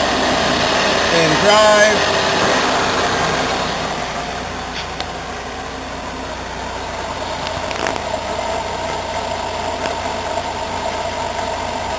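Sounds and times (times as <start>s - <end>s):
car engine idling: 0.0s - 11.9s.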